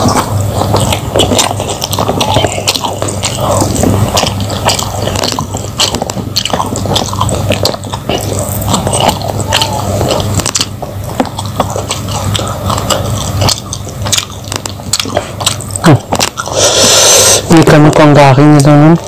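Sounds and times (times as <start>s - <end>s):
close-miked chewing crunches: 0.0s - 19.0s.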